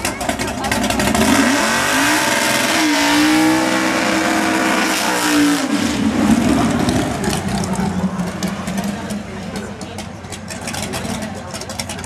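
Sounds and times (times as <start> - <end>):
car engine revving: 0.0 - 12.0
tyres spinning: 6.0 - 12.0.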